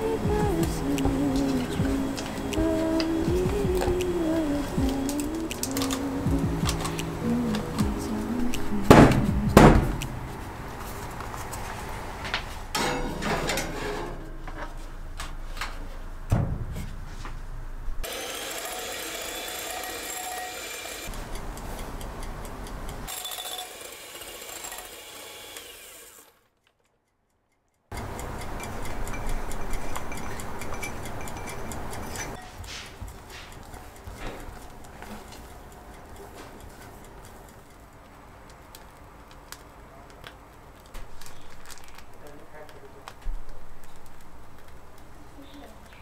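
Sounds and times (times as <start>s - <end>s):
scraping and rubbing: 0.0s - 18.1s
sharp knocks and clicks: 8.8s - 10.4s
mechanical whirr: 18.0s - 21.6s.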